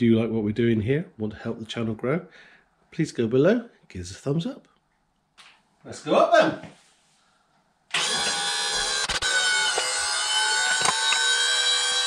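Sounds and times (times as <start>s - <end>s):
hydraulic pump motor whine: 7.9s - 12.0s.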